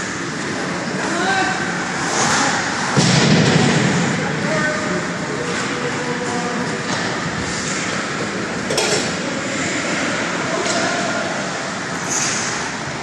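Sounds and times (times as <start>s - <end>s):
skates scraping on ice: 0.4s - 3.0s, 4.9s - 11.3s.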